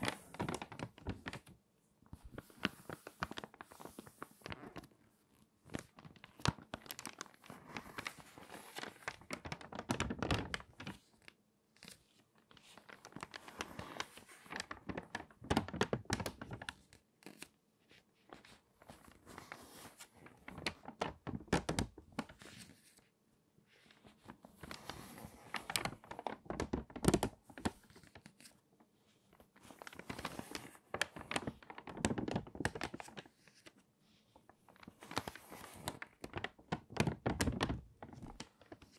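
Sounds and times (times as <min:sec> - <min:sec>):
stiff paper pages crinkling: 0:00.0 - 0:23.1, 0:23.8 - 0:28.6, 0:29.3 - 0:33.8, 0:34.4 - 0:38.9.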